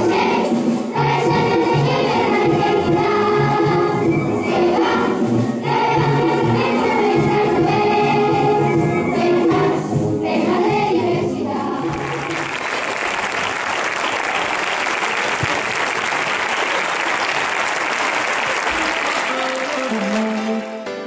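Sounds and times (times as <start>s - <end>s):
children's choir singing: 0.0s - 17.2s
audience applauding: 11.9s - 21.0s.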